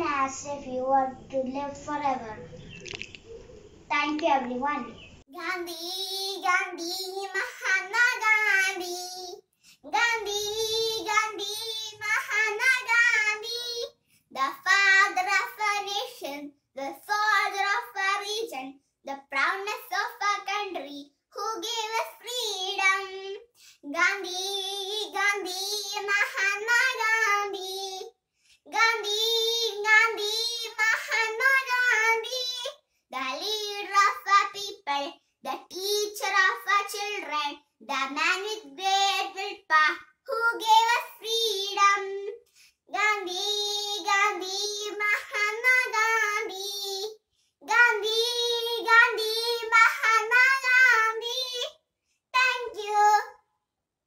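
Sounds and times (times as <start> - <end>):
girl singing: 4.1 - 28.1, 28.7 - 51.7, 52.4 - 53.4.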